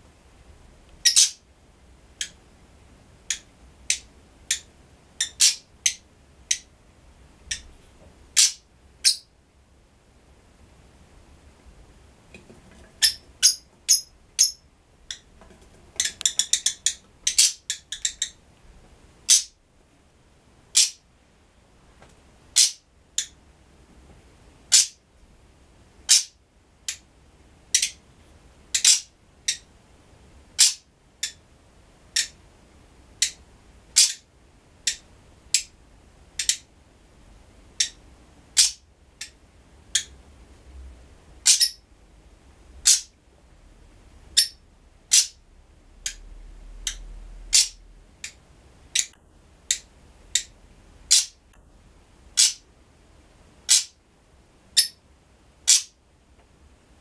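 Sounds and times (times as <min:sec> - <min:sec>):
bird high-pitched calls: 0:01.0 - 0:01.4, 0:03.3 - 0:06.7, 0:08.4 - 0:09.3, 0:13.0 - 0:15.2, 0:16.0 - 0:18.4, 0:19.3 - 0:19.5, 0:20.8 - 0:21.0, 0:22.6 - 0:23.3, 0:24.7 - 0:25.0, 0:26.1 - 0:26.4, 0:28.8 - 0:29.6, 0:30.6 - 0:31.4, 0:34.0 - 0:34.2, 0:38.6 - 0:38.8, 0:41.4 - 0:41.8, 0:44.4 - 0:45.4, 0:46.8 - 0:47.8, 0:52.4 - 0:52.6, 0:54.8 - 0:55.0, 0:55.7 - 0:56.0.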